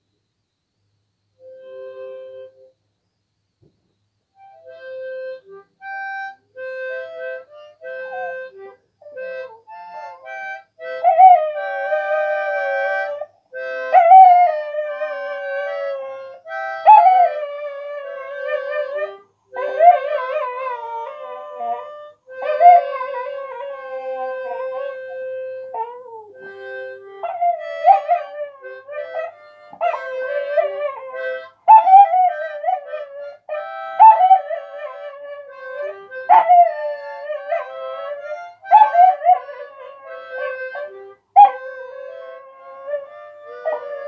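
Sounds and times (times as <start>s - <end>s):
harmonica notes: 1.4s - 2.8s, 4.3s - 44.0s
dog howling: 13.9s - 44.0s.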